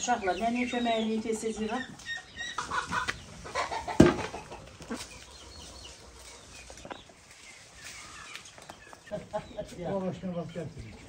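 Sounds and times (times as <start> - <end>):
birds chirping: 0.0 - 11.0
chickens clucking: 0.0 - 11.0
metal basin knocking on dirt: 3.9 - 4.4.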